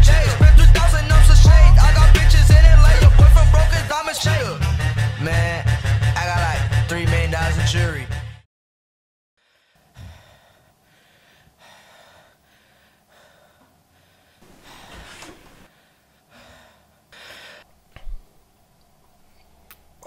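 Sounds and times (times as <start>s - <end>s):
background music: 0.0s - 8.4s
boy breathing heavily: 9.4s - 17.7s.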